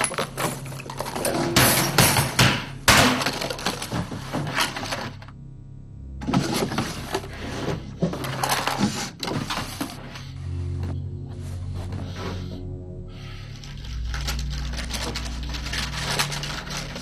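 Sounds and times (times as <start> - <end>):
small objects clattering in a drawer: 0.0 - 2.3, 3.1 - 5.3, 6.2 - 10.2, 13.6 - 17.0.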